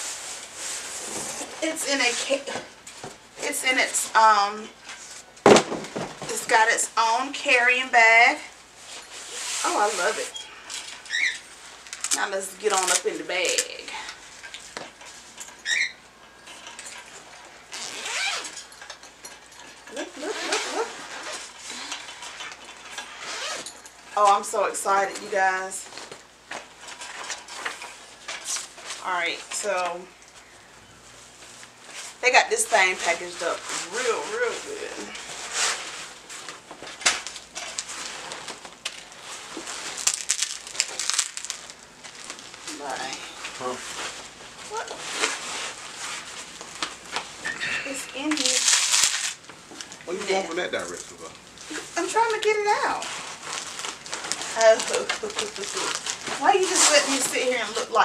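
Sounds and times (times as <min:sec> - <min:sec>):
fabric bag rustling: 0:08.7 - 0:14.4, 0:17.2 - 0:18.8, 0:20.0 - 0:23.8, 0:31.4 - 0:58.0
short squeak: 0:10.3 - 0:11.4, 0:15.6 - 0:16.0
zipper being pulled: 0:17.7 - 0:18.6, 0:20.1 - 0:22.3, 0:22.9 - 0:23.8
padded case rustling and crackling: 0:48.2 - 0:58.0.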